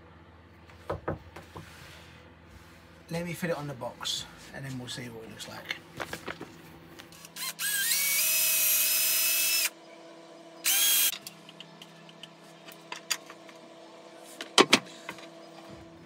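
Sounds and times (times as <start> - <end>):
cordless drill whining: 7.2 - 9.7, 10.6 - 11.1.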